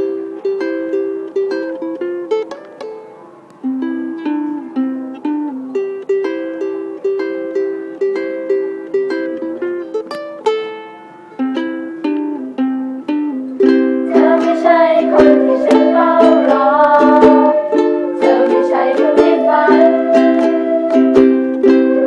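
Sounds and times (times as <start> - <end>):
ukuleles strumming chords: 0.0 - 22.0
sustained higher melody: 13.6 - 22.0.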